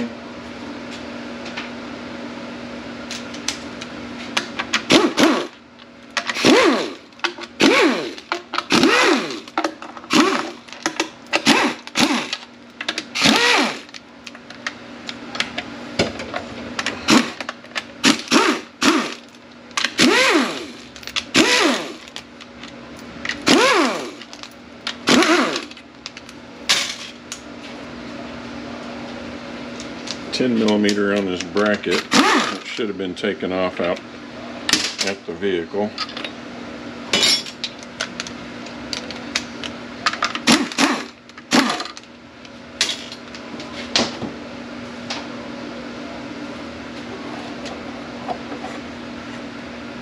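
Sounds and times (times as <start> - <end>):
cordless power tool spinning: 4.9 - 5.6, 6.3 - 14.0, 17.1 - 19.3, 19.9 - 22.2, 23.4 - 25.8, 31.9 - 32.7, 40.4 - 41.9.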